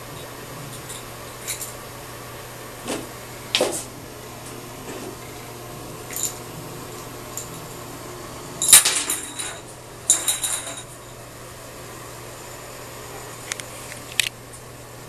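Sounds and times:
toy clattering in bathtub: 8.6s - 11.0s.

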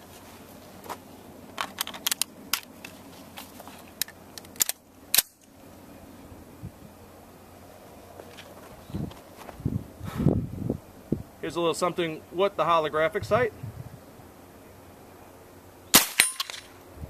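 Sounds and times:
metallic rifle clicks: 4.0s - 5.5s.

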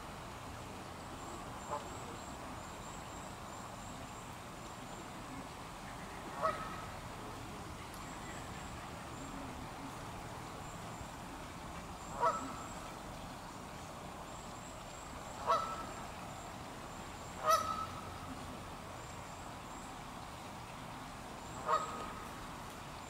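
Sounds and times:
steady background noise: 0.0s - 23.0s
waterfowl calling: 5.3s - 7.1s, 11.4s - 13.3s, 15.3s - 16.3s, 17.2s - 18.7s, 21.4s - 22.5s.

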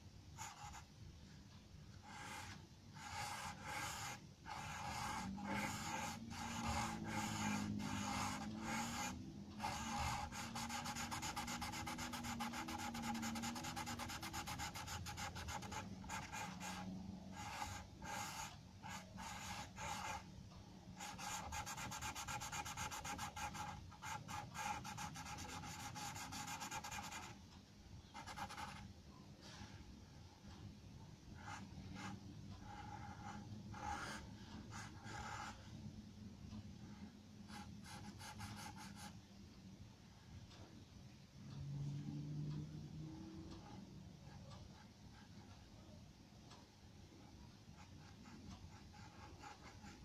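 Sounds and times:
pencil scratching on paper: 0.4s - 0.9s, 2.0s - 20.3s, 21.0s - 27.4s, 28.2s - 28.8s, 31.4s - 35.7s, 37.5s - 39.2s, 47.8s - 50.0s.

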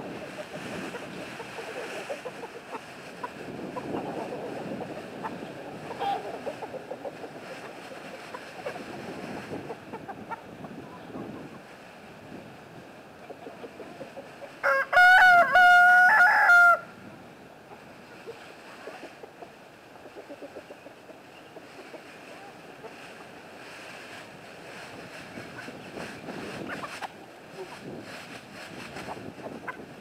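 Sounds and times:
rustling: 0.0s - 10.4s, 21.6s - 30.0s
chickens clucking: 0.0s - 12.4s, 13.1s - 16.1s, 17.6s - 30.0s
rooster crowing: 14.6s - 16.9s.

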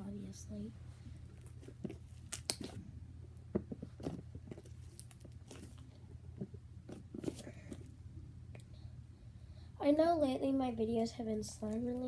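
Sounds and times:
slime squishing by hand: 1.1s - 8.7s.

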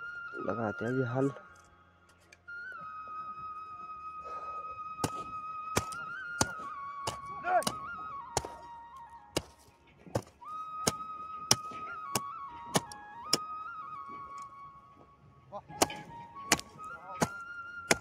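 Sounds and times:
flute music: 0.0s - 18.0s
hoe chopping into dry soil: 5.0s - 8.7s, 9.3s - 13.5s, 15.7s - 18.0s.

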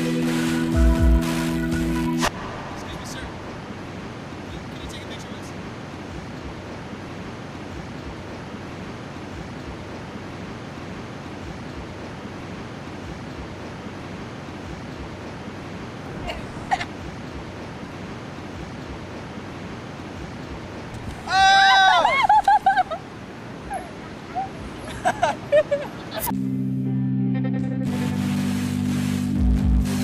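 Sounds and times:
steady rushing noise: 0.0s - 21.3s
brief sharp sound: 2.2s - 4.3s.

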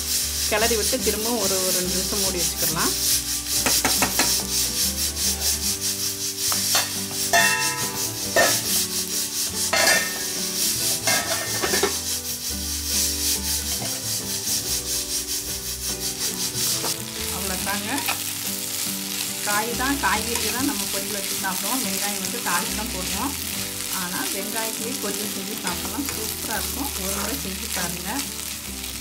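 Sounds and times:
metal spatula scraping onions: 0.0s - 28.5s
metal lid clinking on pan: 6.7s - 8.6s, 9.7s - 10.2s, 11.1s - 12.0s.

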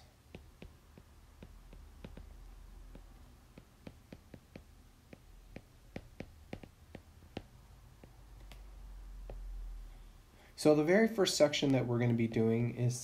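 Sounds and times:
stylus tapping on tablet screen: 0.0s - 9.8s
faint low hum: 0.0s - 13.0s.

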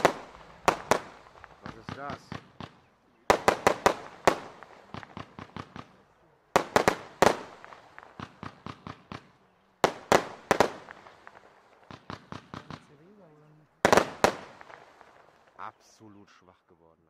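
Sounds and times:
firework bangs and crackles: 0.0s - 15.8s.

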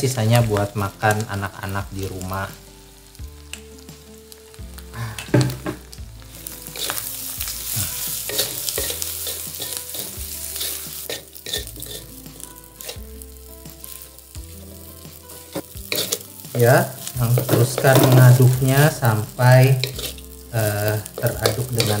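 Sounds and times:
rice sizzling in a wok: 0.0s - 22.0s
wooden spatula scraping wok: 5.6s - 22.0s.

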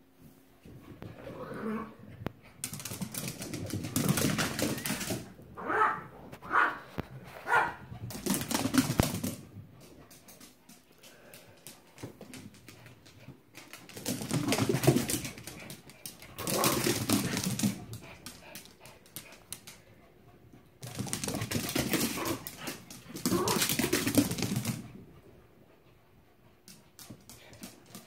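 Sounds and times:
dog claws clicking on vinyl floor: 2.5s - 5.4s, 7.6s - 19.9s, 20.8s - 25.0s, 26.7s - 28.0s.

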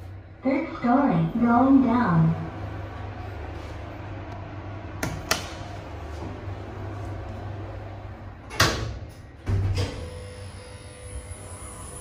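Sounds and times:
low hum of lift car: 0.0s - 12.0s
lift doors closing with thud: 8.4s - 10.3s.

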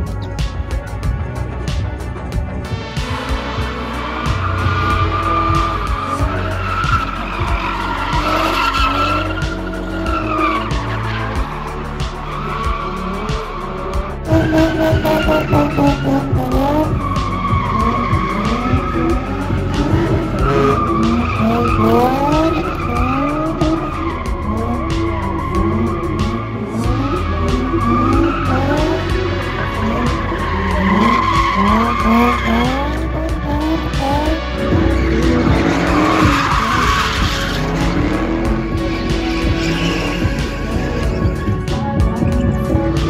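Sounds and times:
background music: 0.0s - 43.0s
car engine revving: 0.0s - 43.0s
tyres squealing: 4.4s - 41.5s.

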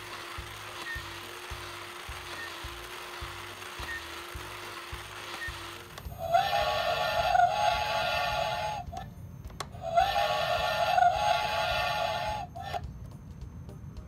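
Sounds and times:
model steam engine whistle: 6.1s - 9.0s, 9.8s - 12.8s.

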